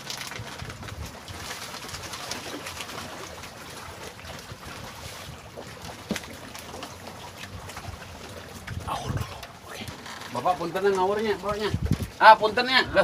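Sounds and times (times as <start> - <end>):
small waves slapping a raft: 0.0 - 13.0
wind: 0.0 - 13.0.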